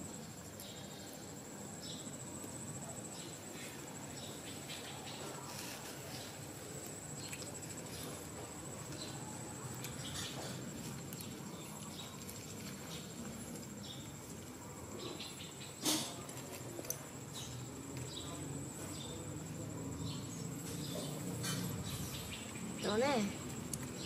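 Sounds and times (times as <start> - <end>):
cricket trilling: 0.0 - 24.0.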